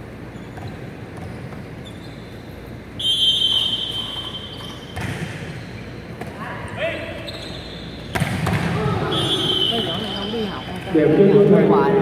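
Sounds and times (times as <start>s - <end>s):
referee's whistle blast: 3.0s - 4.9s, 9.0s - 10.6s
volleyball struck thud: 8.1s - 8.9s.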